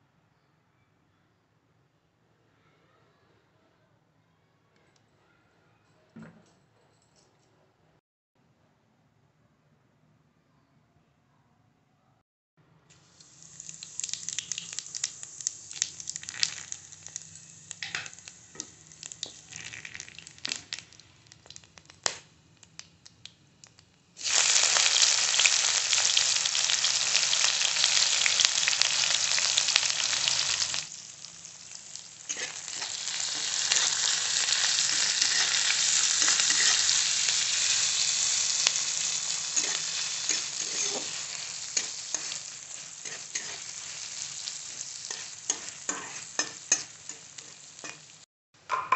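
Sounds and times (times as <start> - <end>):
onions sizzling in oil: 13.0 - 21.7, 24.2 - 48.2
hot oil crackling and popping: 13.0 - 48.3.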